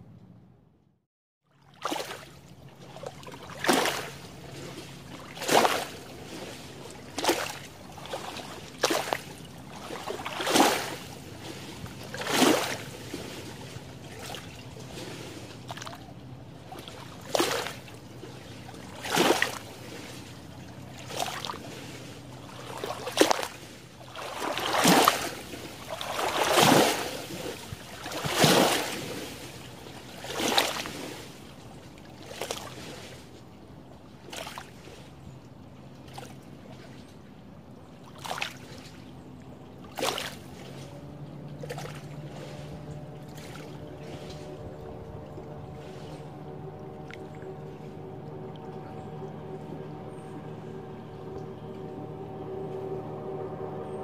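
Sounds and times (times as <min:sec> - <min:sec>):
waves lapping on shore: 0:01.4 - 0:54.0
faint low hum: 0:40.6 - 0:54.0.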